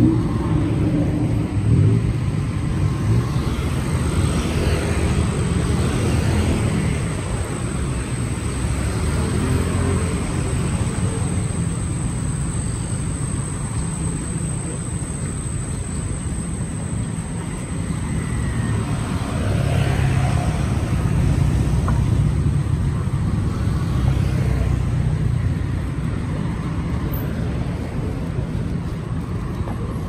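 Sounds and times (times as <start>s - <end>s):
street traffic rumble: 0.0s - 30.0s.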